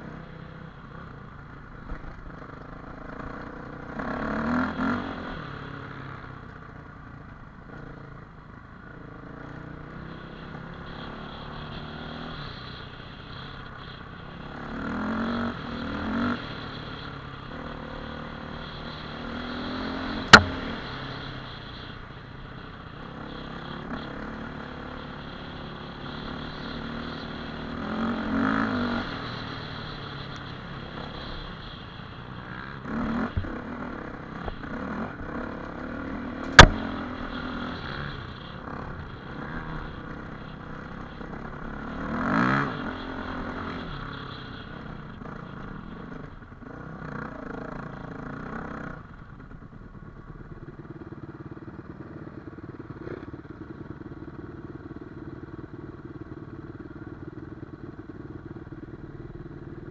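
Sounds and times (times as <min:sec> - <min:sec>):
dirt bike engine revving: 0:02.9 - 0:06.1, 0:09.1 - 0:49.0
sharp knock: 0:20.3 - 0:20.6, 0:36.5 - 0:36.8.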